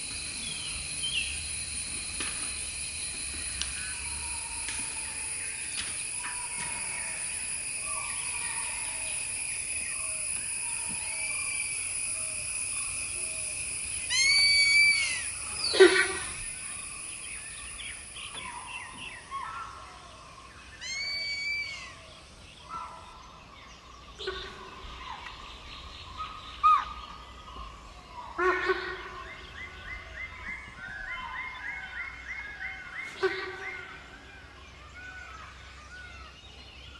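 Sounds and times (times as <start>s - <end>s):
high-pitched drone: 0.0s - 22.0s
bird calls: 0.0s - 36.9s.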